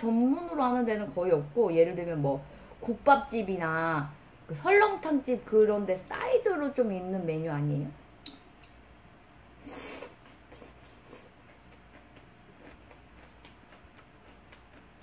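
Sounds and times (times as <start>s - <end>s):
wet chewing clicks: 10.5s - 15.0s.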